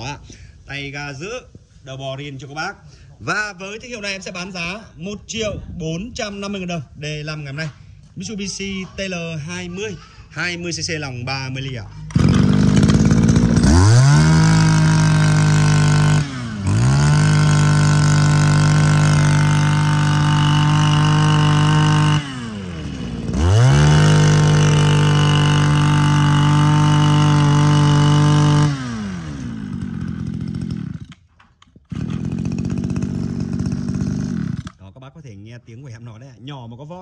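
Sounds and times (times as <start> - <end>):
brush-cutter engine revving: 11.9 - 34.8.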